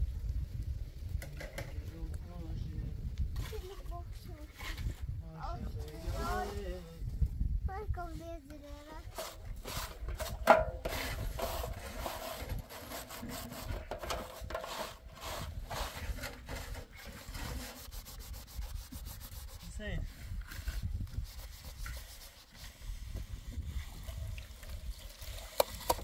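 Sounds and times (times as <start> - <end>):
sponge scrubbing dishes: 9.0 - 23.8.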